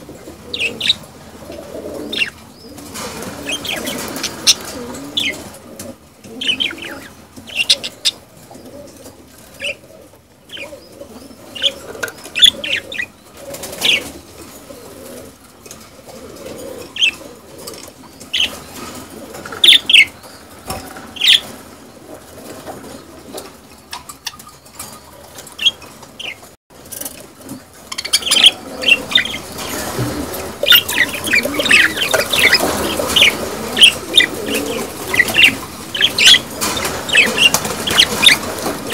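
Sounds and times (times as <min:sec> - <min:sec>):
budgerigars chattering and warbling: 0:00.0 - 0:01.0, 0:02.1 - 0:02.4, 0:03.5 - 0:05.5, 0:06.4 - 0:08.2, 0:11.5 - 0:14.2, 0:16.9 - 0:18.8, 0:19.5 - 0:20.5, 0:21.2 - 0:21.6, 0:27.9 - 0:38.9.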